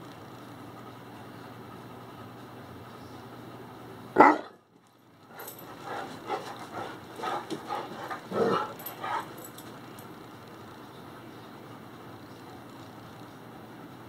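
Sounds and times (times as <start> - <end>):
dog barking: 4.2 - 4.6, 5.4 - 9.5
dog excited vocal noises: 5.3 - 10.1.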